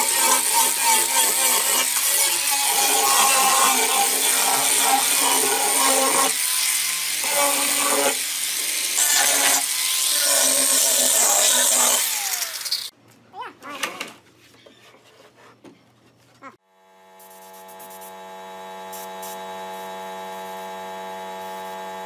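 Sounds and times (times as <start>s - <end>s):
rough sanding on wood: 0.0s - 12.9s
electric sander whining: 18.1s - 22.0s.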